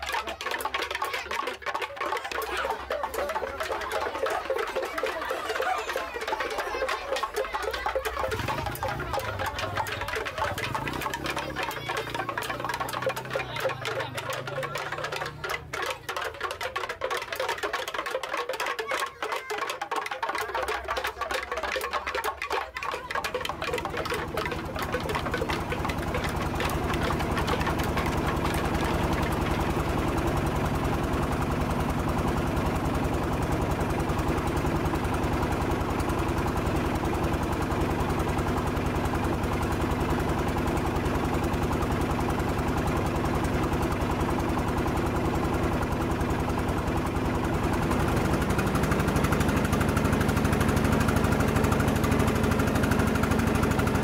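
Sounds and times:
small boat engine knocking: 0.0 - 54.0.

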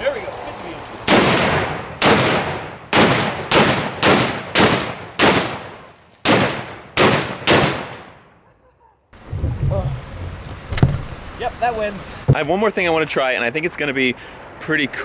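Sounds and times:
heavy rifle shots ringing: 1.1 - 8.4.

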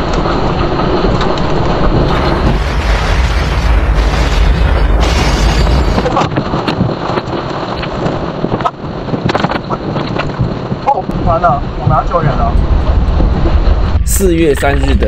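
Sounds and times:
deep rumbling roar: 1.7 - 6.5, 11.1 - 15.0.

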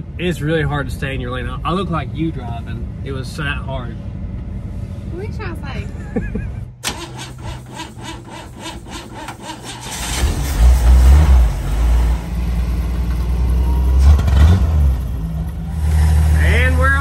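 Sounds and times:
engine running low rumble: 0.0 - 6.9, 9.9 - 17.0
engine cranking by starter: 6.8 - 11.6.

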